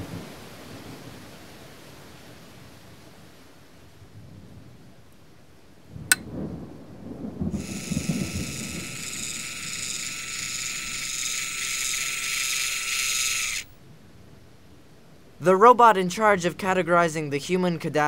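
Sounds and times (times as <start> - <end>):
high-pitched mechanical whir: 7.6 - 13.8.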